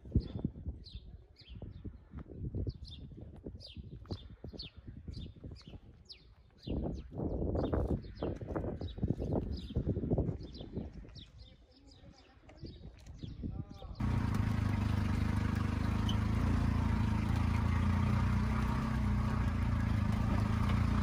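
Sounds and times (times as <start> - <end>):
faint calls: 14.0 - 21.0
small engine running: 14.0 - 21.0.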